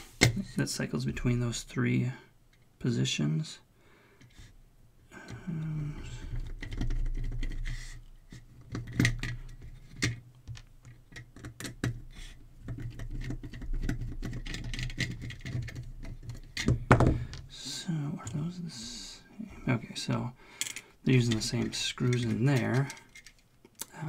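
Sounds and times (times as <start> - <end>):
screwdriver clicking and scraping: 20.6 - 23.4.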